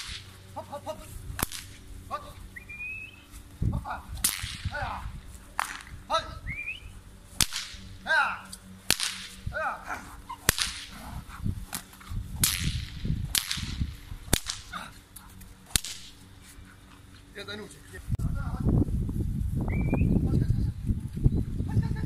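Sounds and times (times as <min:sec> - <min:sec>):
whip cracking: 0:00.0 - 0:00.4, 0:01.4 - 0:03.2, 0:04.0 - 0:06.0, 0:06.6 - 0:16.2
whip lash swishing: 0:00.0 - 0:00.4, 0:01.4 - 0:03.2, 0:04.0 - 0:06.0, 0:06.7 - 0:16.2
puppies yapping: 0:08.0 - 0:12.2.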